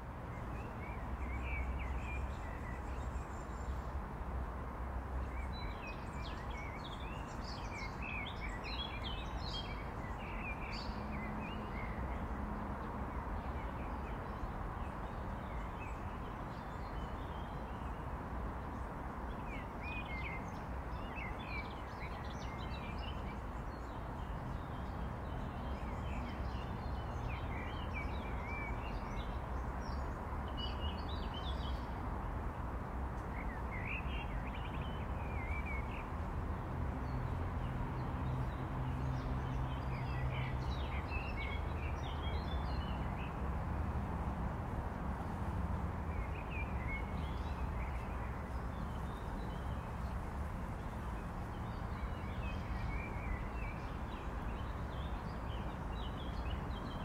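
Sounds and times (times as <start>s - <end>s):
distant traffic hum: 0.0s - 57.0s.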